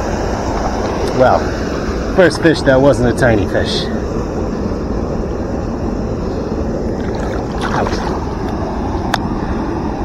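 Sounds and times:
river current rushing: 0:06.7 - 0:09.0
water sloshing: 0:06.8 - 0:08.6.

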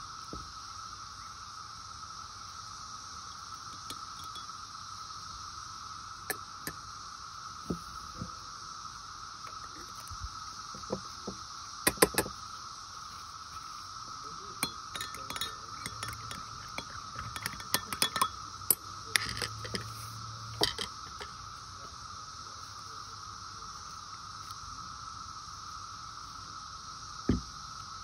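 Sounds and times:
cicadas droning: 0:00.0 - 0:28.0
spoon clinking against glass: 0:03.7 - 0:04.5, 0:14.6 - 0:21.3.

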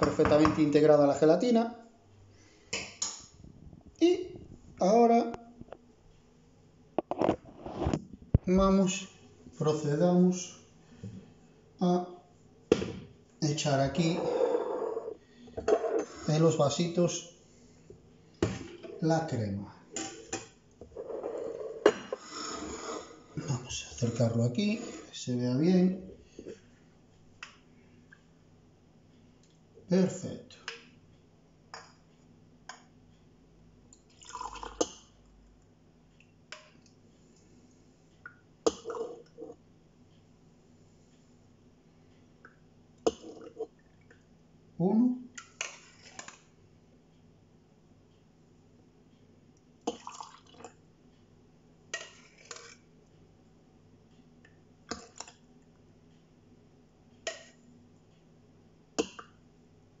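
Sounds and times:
faint steady hum: 0:00.0 - 1:00.0
liquid sloshing and pouring: 0:49.9 - 0:50.8.

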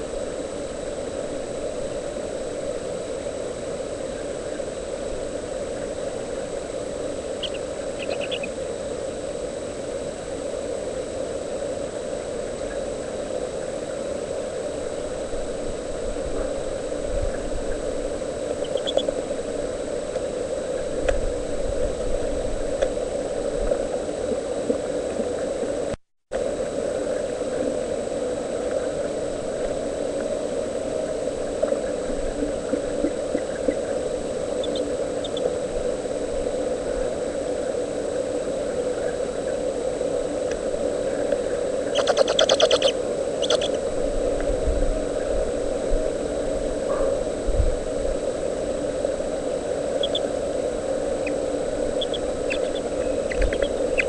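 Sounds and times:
microphone hum and hiss: 0:00.0 - 0:54.0
faint high chirps: 0:07.4 - 0:08.5, 0:18.6 - 0:19.1, 0:41.9 - 0:43.8, 0:50.0 - 0:50.3, 0:51.2 - 0:54.0
raspy high bird calls: 0:07.4 - 0:08.5, 0:18.6 - 0:19.1, 0:41.9 - 0:43.8, 0:50.0 - 0:50.3, 0:51.2 - 0:54.0.

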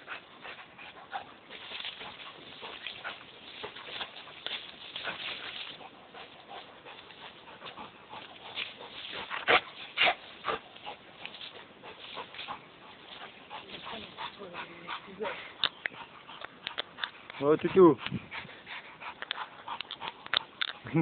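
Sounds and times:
twigs and leaves rustling: 0:00.0 - 0:21.0.

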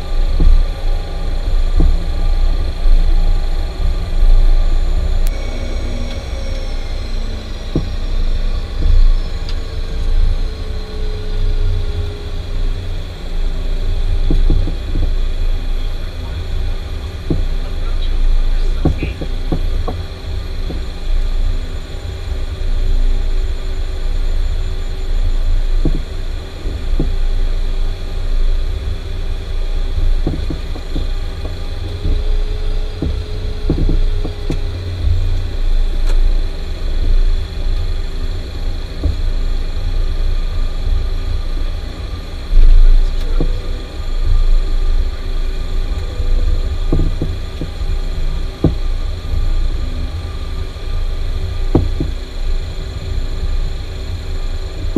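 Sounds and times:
jet engines rumbling and whining: 0:00.0 - 0:54.9.

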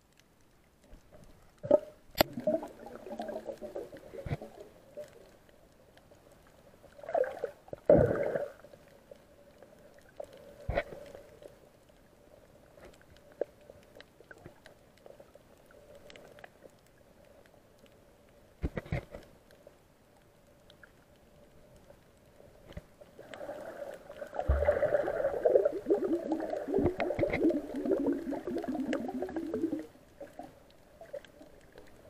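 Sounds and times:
faint steady hum: 0:00.0 - 0:32.0
underwater gurgling and bubbling: 0:01.6 - 0:05.2, 0:06.9 - 0:08.8, 0:23.2 - 0:32.0.

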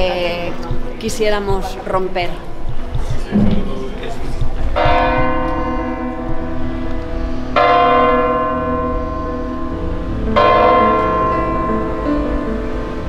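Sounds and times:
church bell tolling: 0:04.8 - 0:13.0.

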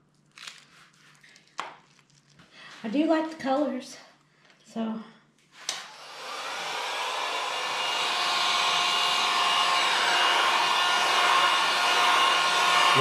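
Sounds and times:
heat gun blowing air: 0:05.6 - 0:13.0.

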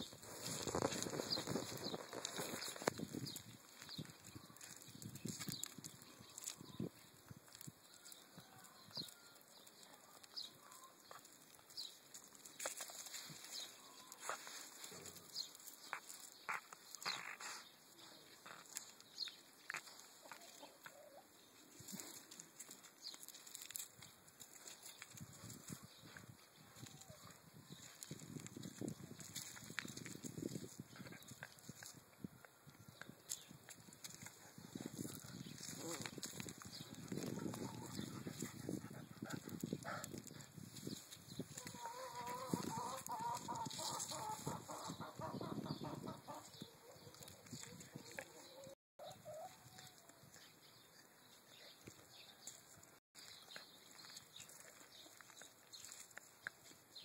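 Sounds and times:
puppy rustling on gravel: 0:00.0 - 0:08.2, 0:09.0 - 0:17.7, 0:21.5 - 0:25.8, 0:33.3 - 0:38.8, 0:40.6 - 0:44.7, 0:53.2 - 0:57.0.

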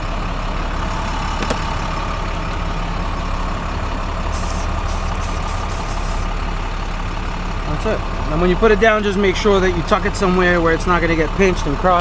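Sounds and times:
truck engine idling: 0:00.0 - 0:12.0
compressed air hisses: 0:04.4 - 0:06.3.

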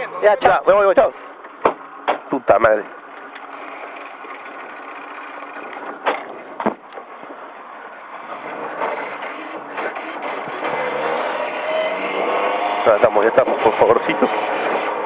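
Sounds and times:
car engine running: 0:00.0 - 0:15.0
sharp knocks: 0:01.6 - 0:02.3
tyres rolling over gravel: 0:03.0 - 0:15.0.

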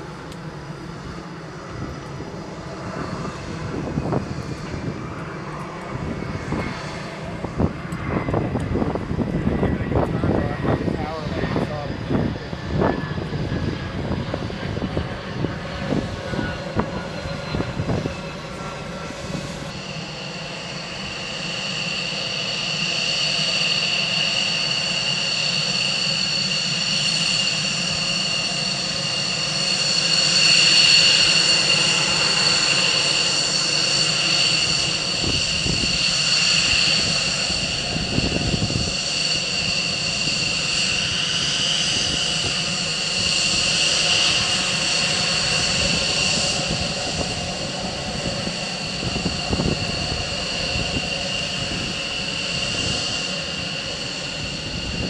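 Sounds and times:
low rumble with buffeting: 0:00.0 - 0:19.9
jet engines whining: 0:00.0 - 0:55.0.

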